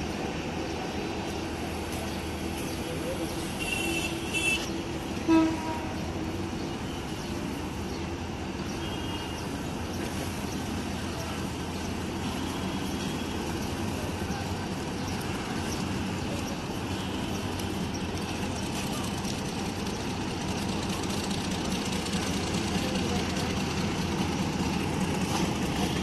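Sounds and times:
diesel locomotive engine running: 0:00.0 - 0:26.0
locomotive horn toot: 0:03.5 - 0:06.2.

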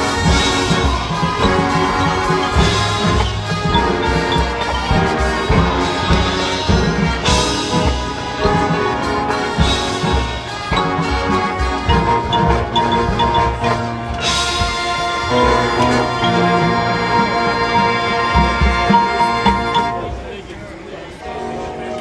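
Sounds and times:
mallet percussion: 0:00.0 - 0:20.2
marching band playing: 0:00.0 - 0:20.5.

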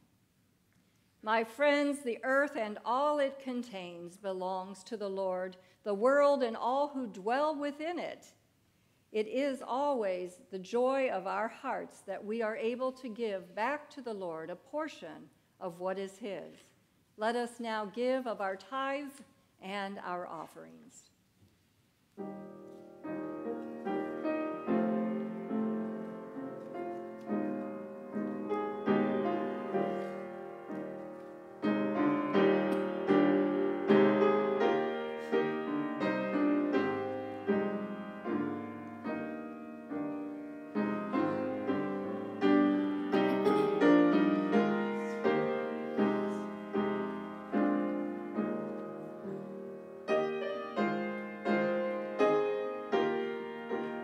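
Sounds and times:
solo piano piece: 0:22.2 - 0:54.0.

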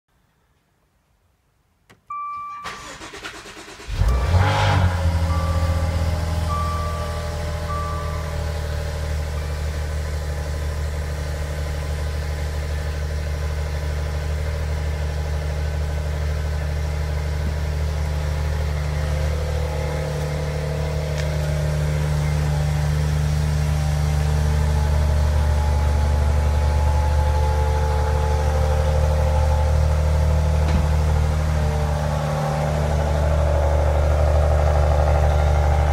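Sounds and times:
car engine starting and idling: 0:01.9 - 0:35.9.

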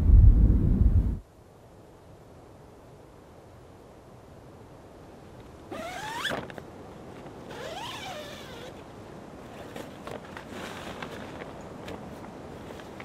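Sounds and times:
tent zipper unzipping: 0:05.7 - 0:06.5, 0:07.5 - 0:08.8
light clicks and rustles: 0:08.7 - 0:13.0.

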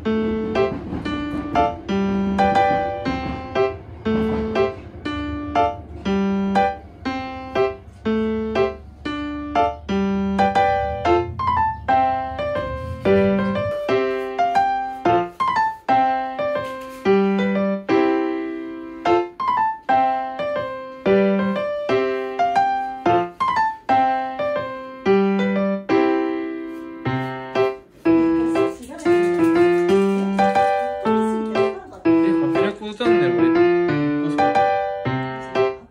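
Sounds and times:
piano music: 0:00.0 - 0:35.9
low rumble: 0:00.6 - 0:13.9.

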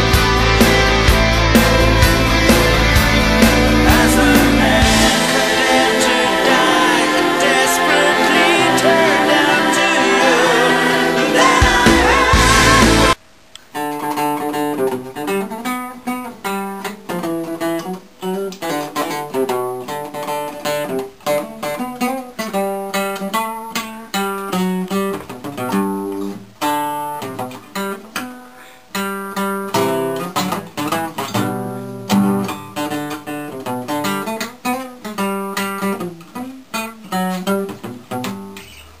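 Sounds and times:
classical acoustic guitar: 0:13.7 - 0:39.0.

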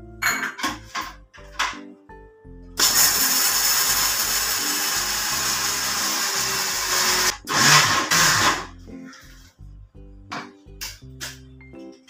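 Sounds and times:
mixer grinder running: 0:02.8 - 0:08.7.

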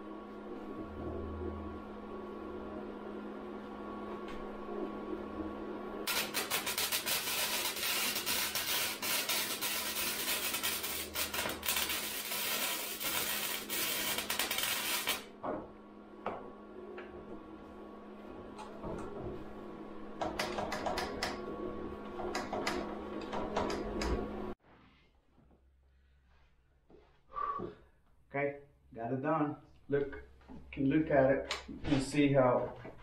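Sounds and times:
welding arc crackling: 0:06.0 - 0:15.3.

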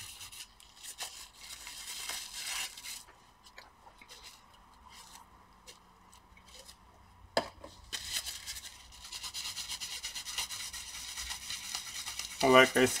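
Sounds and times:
wipe rubbing scratchily: 0:08.2 - 0:13.0.

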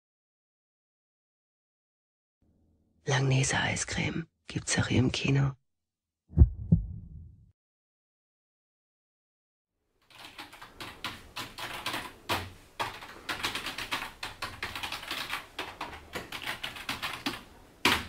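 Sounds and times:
typing on computer keyboard: 0:10.0 - 0:18.0.

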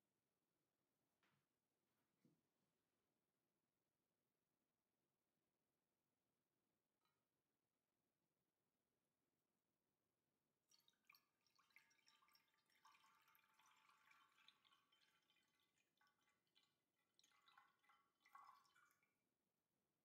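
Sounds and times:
liquid pouring into a glass dish: 0:10.6 - 0:19.4.

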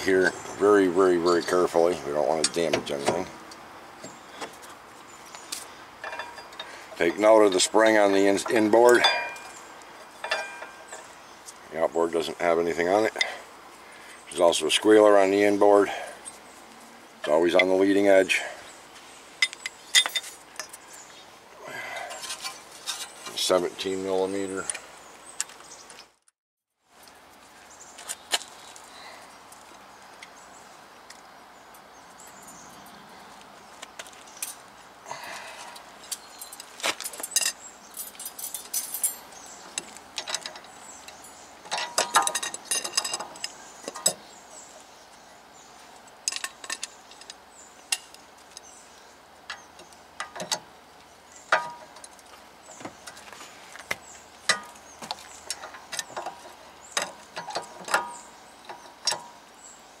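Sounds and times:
metallic tool clinks: 0:37.2 - 0:39.3.

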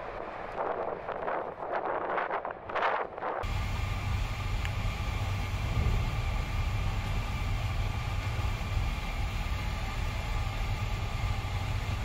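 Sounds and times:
low engine and ventilation drone: 0:03.4 - 0:12.0.

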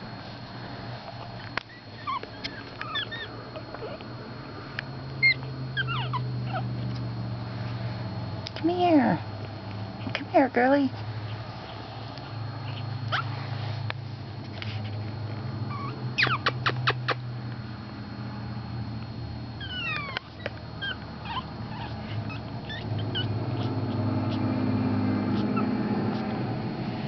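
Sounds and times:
steady low hum: 0:00.0 - 0:27.0
puppies squeaking and whimpering: 0:01.4 - 0:04.0, 0:05.2 - 0:06.9, 0:12.6 - 0:13.4, 0:15.7 - 0:17.2, 0:19.6 - 0:24.6, 0:25.2 - 0:26.3.

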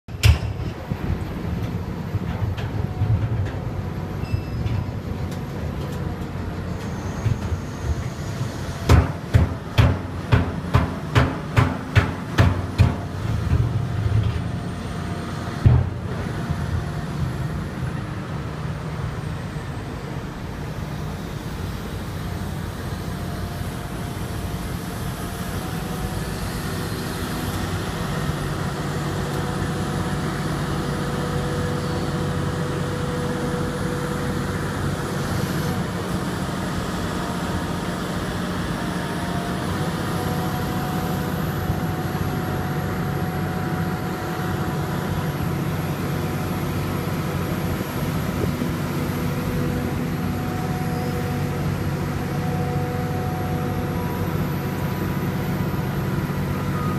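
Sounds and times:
excavator engine running: 0:00.1 - 0:56.9.

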